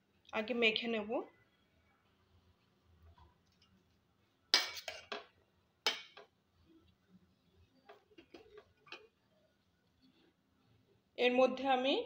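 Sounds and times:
metal spoon scraping a bowl: 0:04.6 - 0:05.3.

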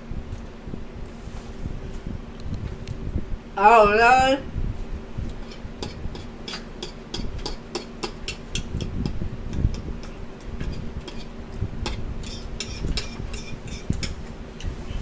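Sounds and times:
metal fork scraping a bowl: 0:10.0 - 0:11.3, 0:11.9 - 0:14.2.

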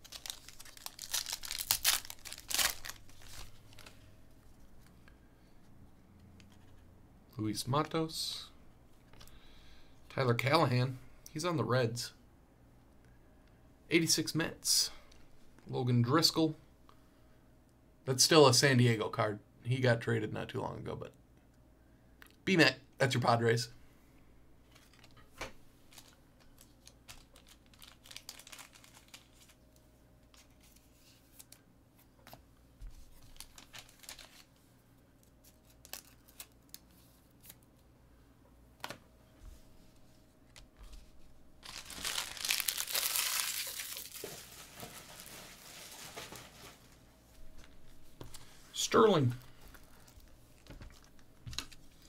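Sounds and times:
packaging tearing and crinkling: 0:00.0 - 0:03.9, 0:25.9 - 0:29.6, 0:33.2 - 0:34.5, 0:35.4 - 0:36.8, 0:41.6 - 0:46.8
soft rustling: 0:39.3 - 0:48.8.

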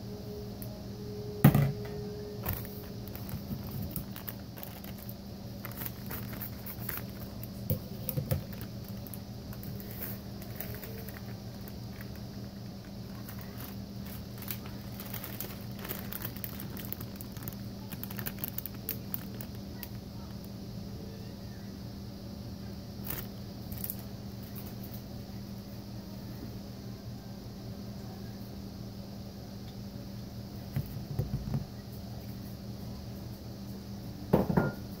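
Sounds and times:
steady low hum: 0:00.0 - 0:35.0
plastic bag crinkling: 0:02.4 - 0:20.4, 0:23.0 - 0:24.8.

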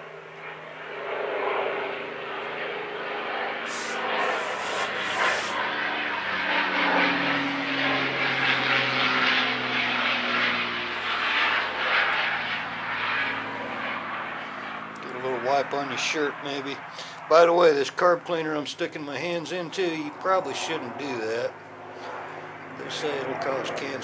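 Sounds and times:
engine drone: 0:00.0 - 0:24.0
aerosol spray hissing: 0:03.7 - 0:05.6.

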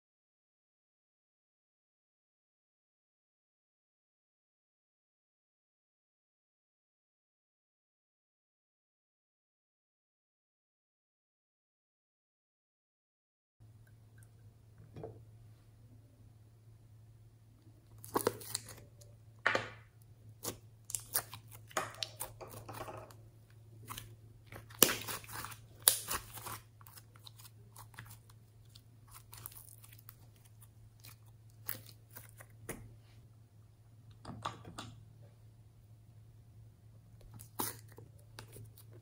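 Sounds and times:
faint steady hum: 0:13.6 - 0:39.0
sticky slime stretching: 0:17.9 - 0:19.1, 0:20.4 - 0:23.1, 0:23.8 - 0:32.8, 0:37.3 - 0:39.0.

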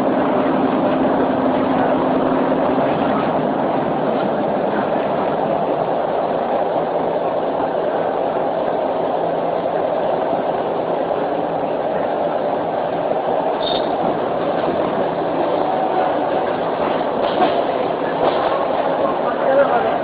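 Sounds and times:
moving train running noise: 0:00.0 - 0:20.0
brief high squeak: 0:13.6 - 0:14.0.

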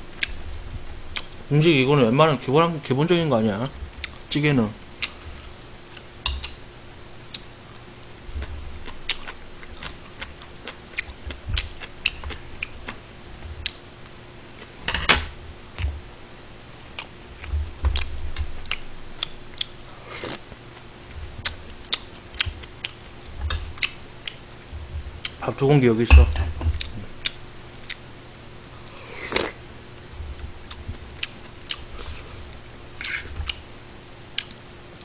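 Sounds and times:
dull low thumps: 0:17.5 - 0:18.6, 0:24.6 - 0:25.3, 0:30.1 - 0:31.2.

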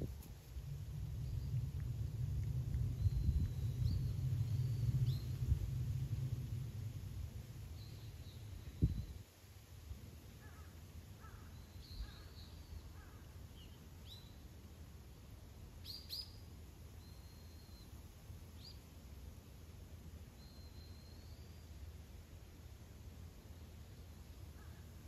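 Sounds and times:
faint birds chirping: 0:00.0 - 0:09.5, 0:10.1 - 0:14.6, 0:15.2 - 0:25.0
low background rumble: 0:00.0 - 0:15.8.

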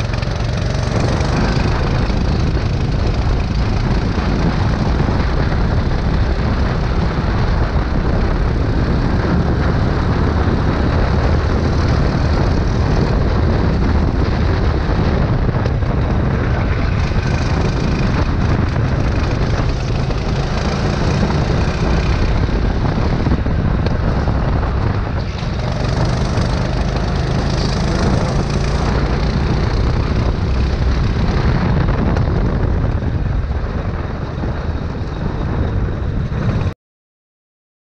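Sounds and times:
kart engine running: 0:00.0 - 0:36.7.

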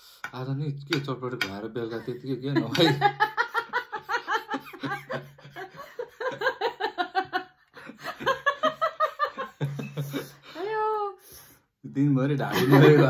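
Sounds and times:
man and woman laughing: 0:01.9 - 0:10.6, 0:12.5 - 0:13.0.

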